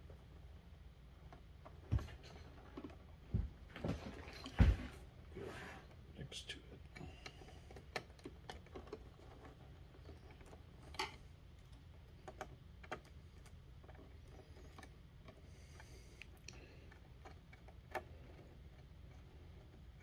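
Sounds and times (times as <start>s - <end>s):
small clicks and taps from wires: 6.9s - 20.0s.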